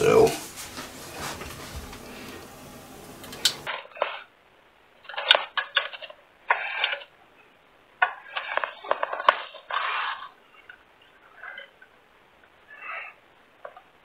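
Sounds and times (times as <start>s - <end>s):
probe scraping inside drain pipe: 8.0s - 10.8s.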